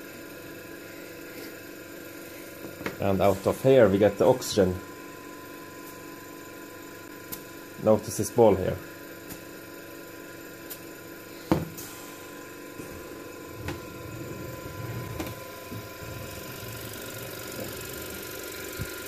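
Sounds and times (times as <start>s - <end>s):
air compressor humming: 0.0s - 19.0s.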